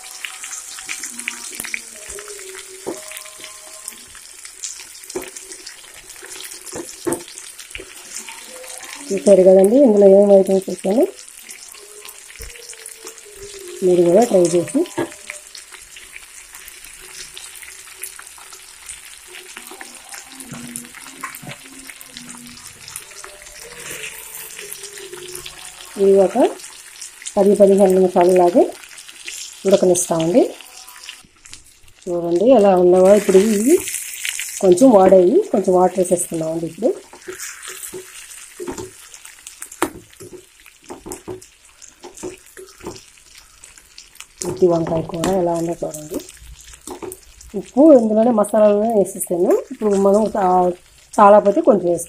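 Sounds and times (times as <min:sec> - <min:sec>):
food sizzling in oil: 0:00.0 - 0:52.0.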